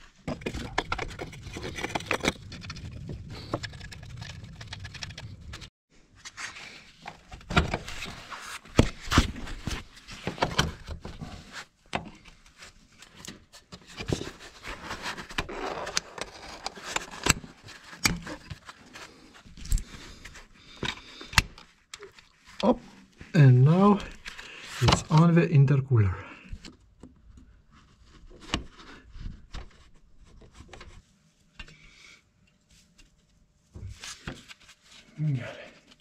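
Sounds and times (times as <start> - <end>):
scraping and rubbing of hose: 0.0 - 10.3.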